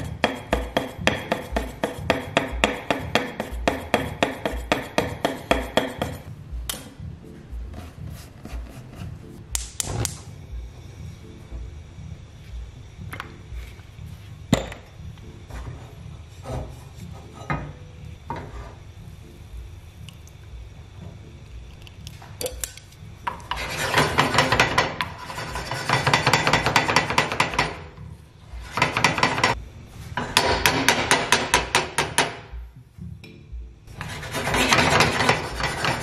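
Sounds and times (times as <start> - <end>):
chopsticks scraping a frying pan: 23.4 - 26.8, 34.0 - 36.0.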